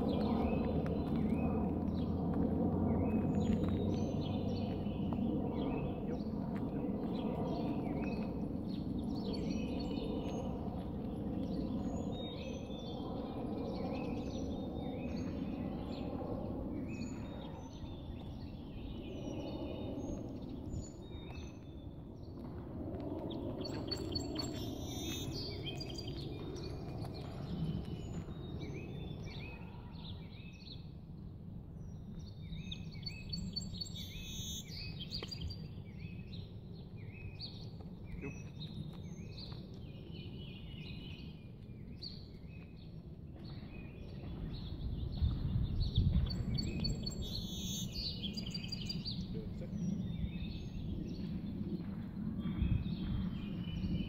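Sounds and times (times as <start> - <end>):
low outdoor rumble: 0.0 - 34.0, 48.1 - 54.0.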